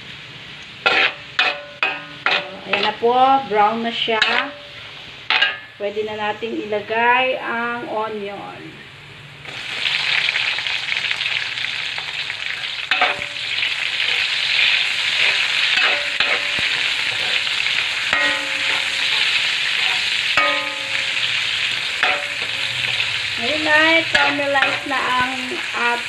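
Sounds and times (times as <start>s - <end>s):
onion and garlic sizzling in oil: 0.0s - 8.2s, 9.4s - 26.0s
metal spatula scraping a wok: 0.8s - 5.8s, 12.5s - 26.0s.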